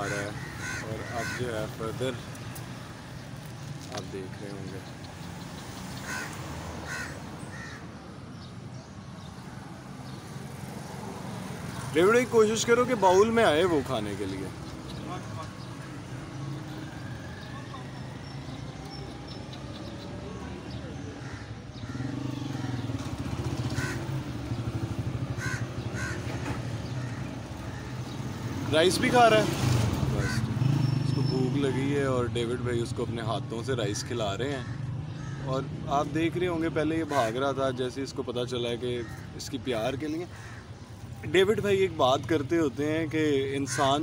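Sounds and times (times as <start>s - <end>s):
crow cawing: 0.0s - 2.0s, 5.9s - 8.0s, 20.7s - 24.4s, 25.3s - 28.2s, 30.2s - 30.5s, 33.8s - 35.7s, 39.0s - 39.5s, 40.2s - 41.0s, 43.6s - 44.0s.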